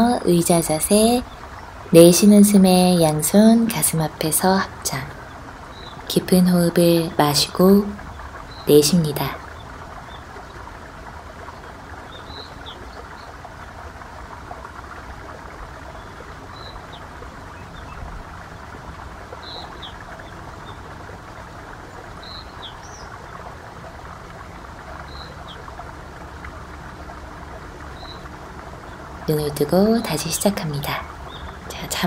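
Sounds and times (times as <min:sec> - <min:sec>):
rushing hiss of flowing water: 0:00.0 - 0:32.0
small birds chirping: 0:19.3 - 0:20.9, 0:27.8 - 0:32.0.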